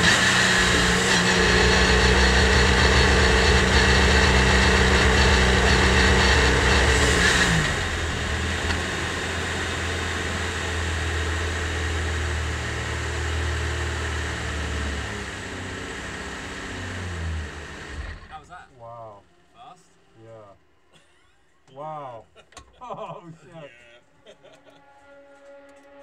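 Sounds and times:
race car engine running: 0.0s - 18.4s.

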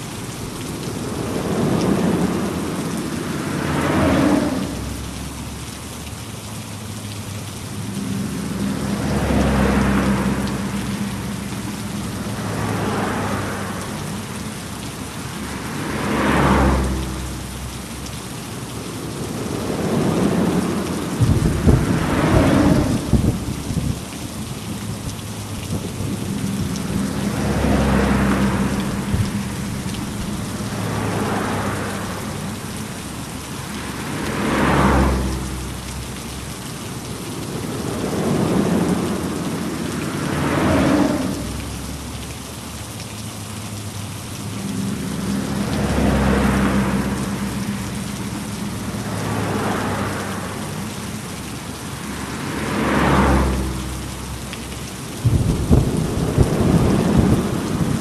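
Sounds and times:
heavy rain falling: 0.0s - 58.0s
thunder rumbling: 18.8s - 24.1s, 55.2s - 58.0s.

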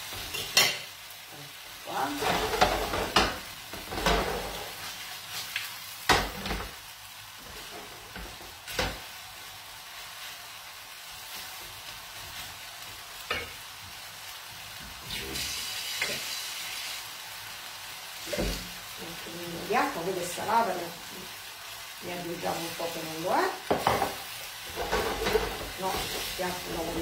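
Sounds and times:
spaghetti sizzling in a frying pan: 0.0s - 27.0s
utensil knocking and scraping pan: 23.7s - 26.3s.

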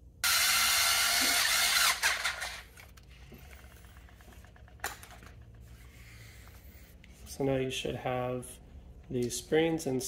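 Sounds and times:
electric screwdriver running: 0.2s - 2.7s.

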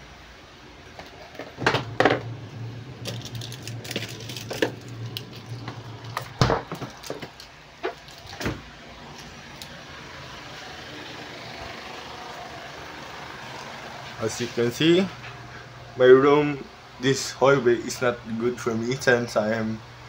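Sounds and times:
low steady hum: 0.0s - 20.0s
items clattering in freezer: 3.0s - 9.4s.

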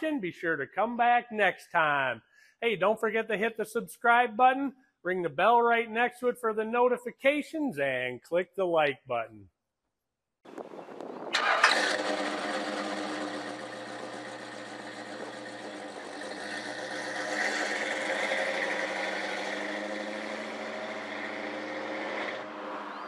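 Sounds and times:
car engine starting and running: 11.1s - 23.0s.

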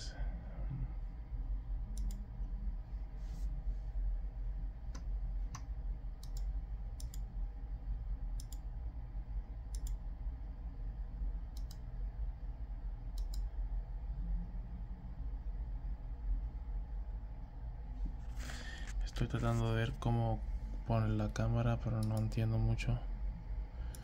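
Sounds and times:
steady low hum: 0.0s - 24.0s
computer mouse clicking: 1.9s - 2.3s, 4.8s - 7.3s, 8.3s - 8.7s, 9.6s - 10.0s, 11.5s - 12.0s, 13.1s - 13.5s, 22.0s - 22.4s.

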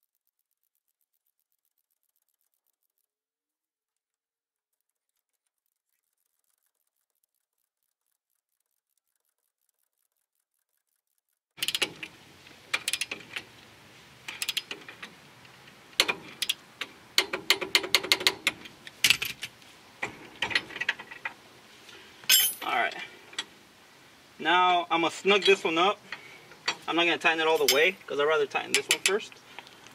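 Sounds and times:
socket ratchet clicking: 11.6s - 12.1s, 12.7s - 13.4s, 14.3s - 15.1s
metal tools clinking: 22.3s - 22.7s, 25.3s - 29.3s.

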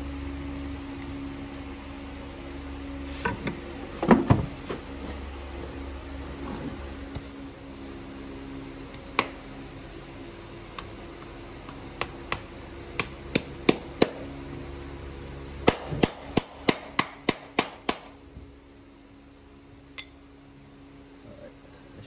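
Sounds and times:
hammer striking horseshoe nails: 11.7s - 14.2s, 15.6s - 18.2s.

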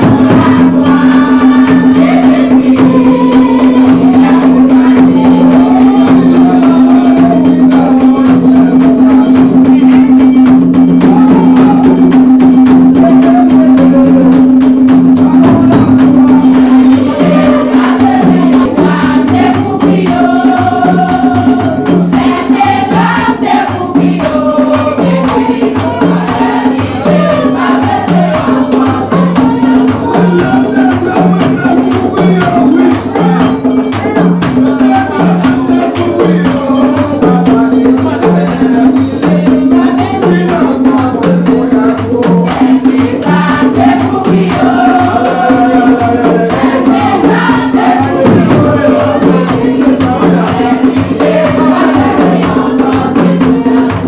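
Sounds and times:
drums beating steady rhythm: 0.0s - 54.0s
group of voices singing: 0.0s - 54.0s.

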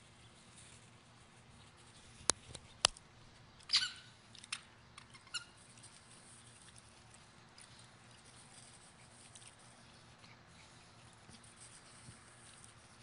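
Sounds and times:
toy squeaking: 3.7s - 4.2s, 5.1s - 5.6s.

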